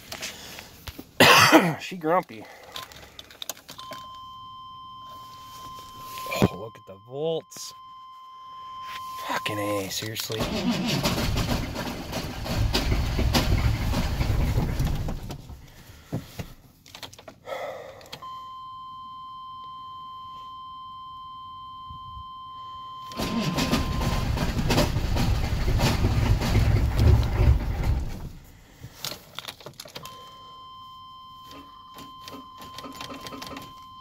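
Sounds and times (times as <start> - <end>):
steady electronic beep: 3.8 - 10.0, 18.2 - 24.2
diesel engine cranking by starter: 10.3 - 15.8, 23.1 - 28.6.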